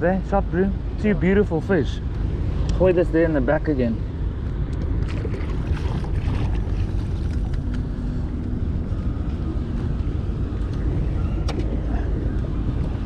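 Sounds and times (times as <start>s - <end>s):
wind buffeting microphone: 0.0s - 13.0s
water lapping around boat: 4.1s - 13.0s.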